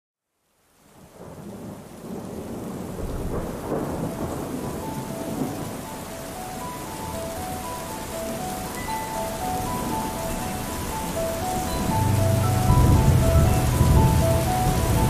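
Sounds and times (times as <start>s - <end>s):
steady rain: 0.2s - 15.0s
low rumble of thunder: 1.1s - 5.9s, 10.8s - 15.0s
soft melody notes: 4.2s - 15.0s.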